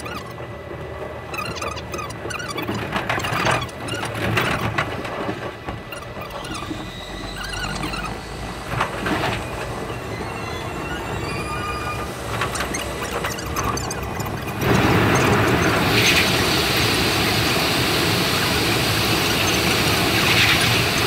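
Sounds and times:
high wavering squeaks: 0.0s - 0.5s, 1.2s - 4.7s, 5.8s - 8.6s, 9.4s - 16.3s
train low rumble: 0.0s - 21.0s.

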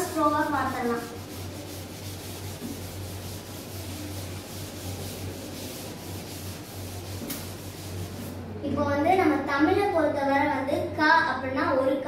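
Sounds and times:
duster rubbing on chalkboard: 0.0s - 8.4s
steady low hum: 0.0s - 11.5s.

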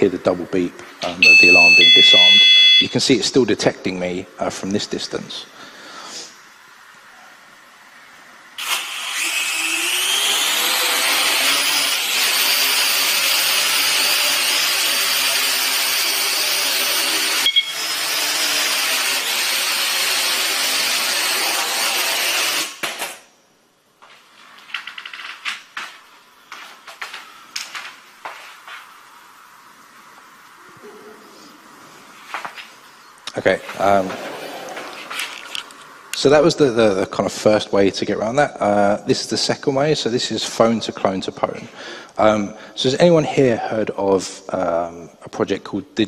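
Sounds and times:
drone rotors whining: 8.6s - 21.4s.

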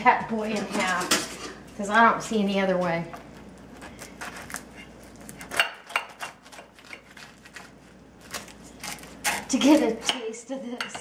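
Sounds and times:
knife sawing through burger: 3.8s - 5.4s.

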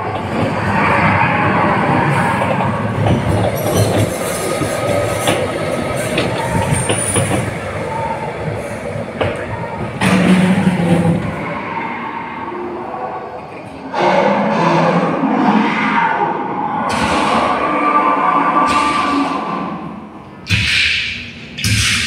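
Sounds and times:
ride train wheels rumbling: 0.0s - 13.9s.

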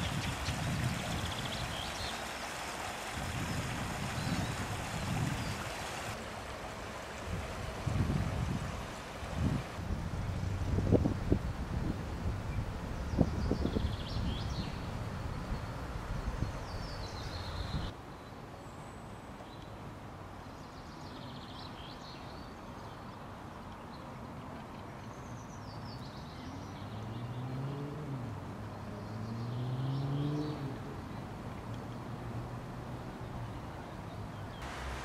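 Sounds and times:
wind buffeting microphone: 0.0s - 2.2s, 3.0s - 6.2s, 7.1s - 17.9s
songbirds singing: 0.0s - 2.5s, 3.4s - 6.2s, 12.5s - 19.8s, 20.5s - 27.7s, 28.6s - 32.2s, 32.9s - 34.7s.

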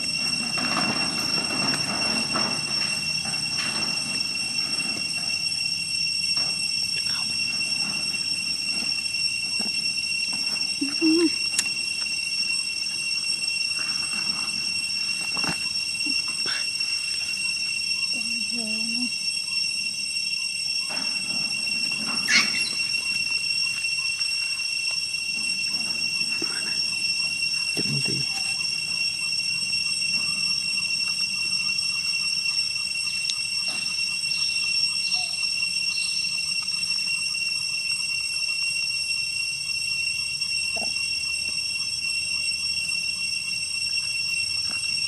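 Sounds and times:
high-pitched insect chorus: 0.0s - 45.0s
faint fast pulsing chirp: 4.9s - 20.9s, 21.6s - 44.6s
short squeak: 20.9s - 23.7s.

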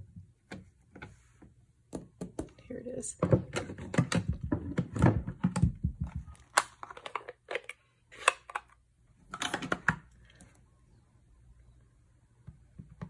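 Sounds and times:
plastic cases clicking and knocking: 3.2s - 7.7s, 9.3s - 10.1s.

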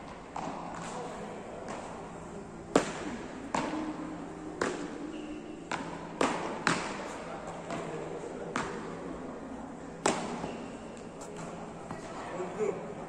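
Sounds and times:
paddles striking ball: 2.7s - 5.0s, 5.6s - 7.9s, 10.0s - 12.1s.

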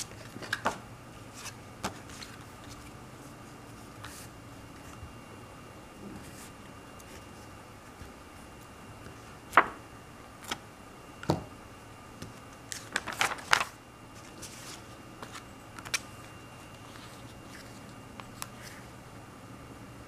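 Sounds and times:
paper crackling: 12.6s - 18.9s.

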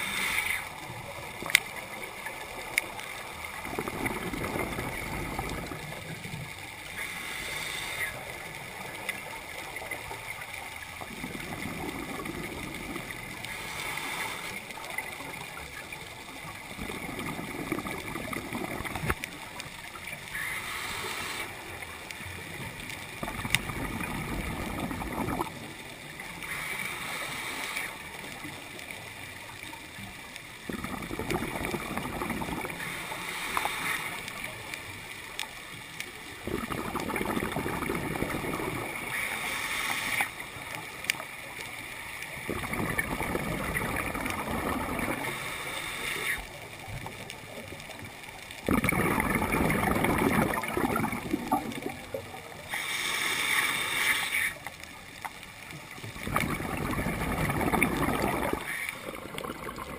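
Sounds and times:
regulator breathing underwater: 0.0s - 0.9s, 6.9s - 8.5s, 11.5s - 14.8s, 20.2s - 21.8s, 26.4s - 28.3s, 30.8s - 34.4s, 36.5s - 40.6s, 42.8s - 46.5s, 52.6s - 54.6s
bubbles gurgling: 0.7s - 7.3s, 7.9s - 27.0s, 28.0s - 35.0s, 36.1s - 39.4s, 42.2s - 53.8s, 54.4s - 59.9s.

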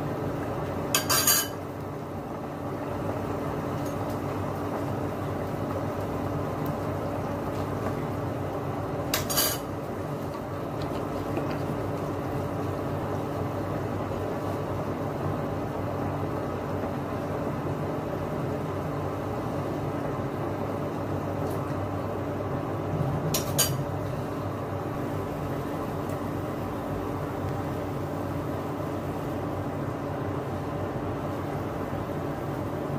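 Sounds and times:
steady droning hum: 12.0s - 32.9s.

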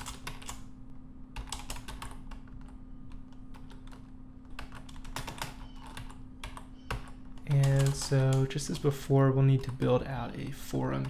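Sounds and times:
typing on computer keyboard: 0.0s - 0.6s, 1.4s - 8.5s.

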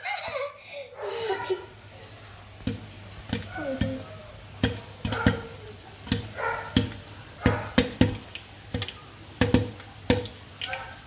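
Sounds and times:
popcorn popping in a pan: 2.5s - 10.8s.

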